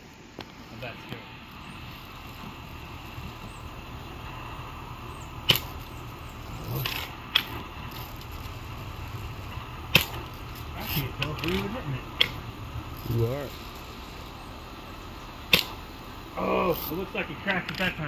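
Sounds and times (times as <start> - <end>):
bb gun firing crack: 5.4 - 5.9, 9.9 - 10.4, 15.4 - 15.9.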